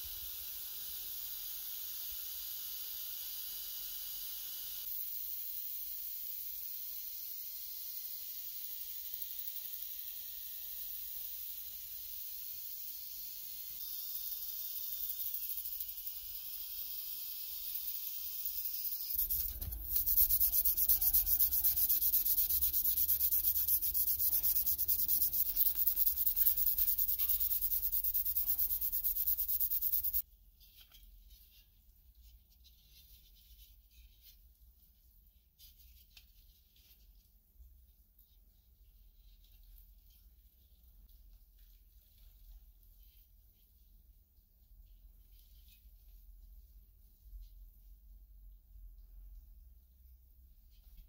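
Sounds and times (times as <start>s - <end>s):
drill spinning abrasive wheel: 8.2s - 30.2s
faint handling ticks: 19.1s - 30.2s.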